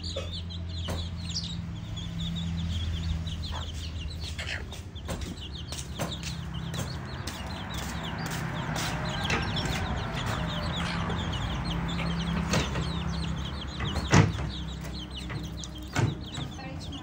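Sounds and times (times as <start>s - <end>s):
fowl clucking and chirping: 0.0s - 17.0s
sharp knocks: 0.8s - 1.3s, 4.8s - 16.6s.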